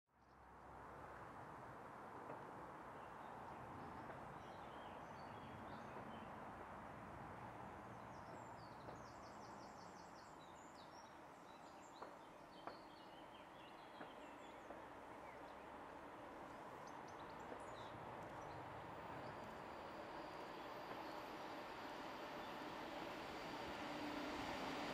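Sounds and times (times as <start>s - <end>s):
distant freight train rumble: 13.9s - 24.9s.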